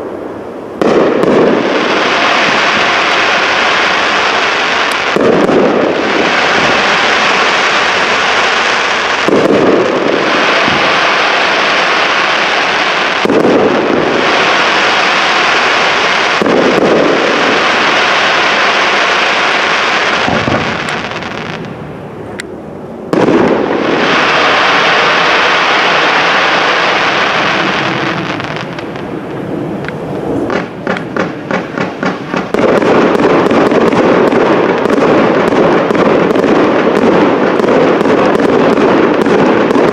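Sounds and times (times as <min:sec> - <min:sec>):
firework hiss: 0:00.6 - 0:21.9, 0:23.1 - 0:39.9
sharp firework pops: 0:00.8 - 0:01.8, 0:04.8 - 0:07.0, 0:09.1 - 0:10.9, 0:13.2 - 0:14.4, 0:16.3 - 0:17.5, 0:20.1 - 0:22.5, 0:23.1 - 0:23.7, 0:27.7 - 0:39.9
firework shells bursting: 0:00.8 - 0:21.8, 0:23.1 - 0:39.9.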